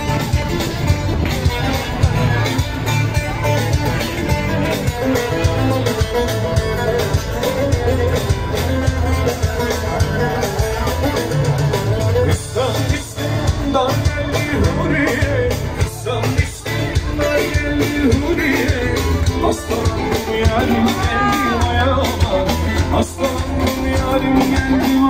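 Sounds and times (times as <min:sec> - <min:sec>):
guitar: 0:00.0 - 0:25.0
live band dance music: 0:00.0 - 0:25.0
sustained bass notes: 0:00.0 - 0:25.0
person singing: 0:12.2 - 0:25.0.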